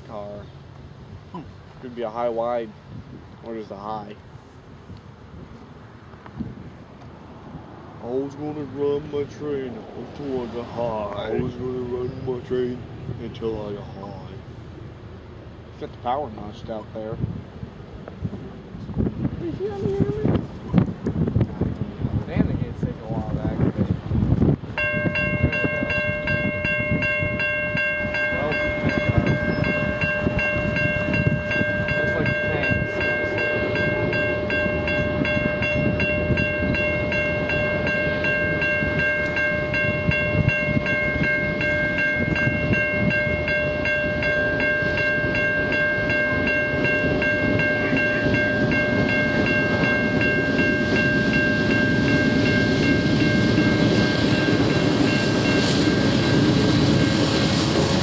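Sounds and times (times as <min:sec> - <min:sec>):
diesel locomotive rumble: 0:00.0 - 0:58.0
crossing warning bell ringing: 0:24.6 - 0:58.0.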